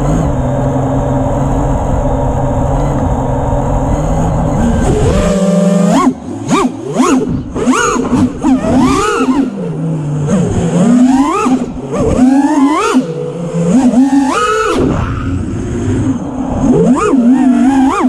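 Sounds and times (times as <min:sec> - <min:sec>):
drone motors whining: 0:00.0 - 0:18.0.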